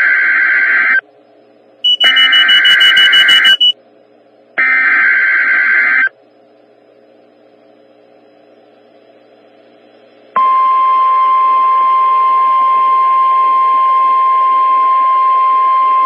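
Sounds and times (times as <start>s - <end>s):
buzzy digital data tones: 1.9s - 3.7s.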